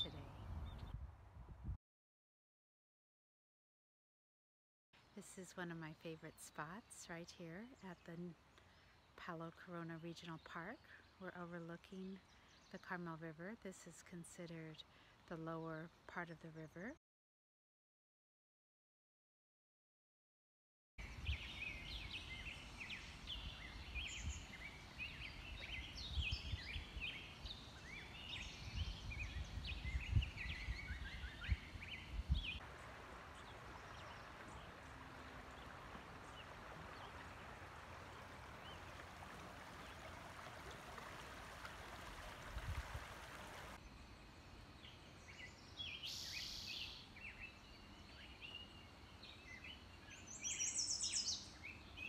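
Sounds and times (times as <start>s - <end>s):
birds chirping: 0.0s - 1.0s, 21.2s - 52.0s
river water flowing over stones: 32.6s - 43.8s.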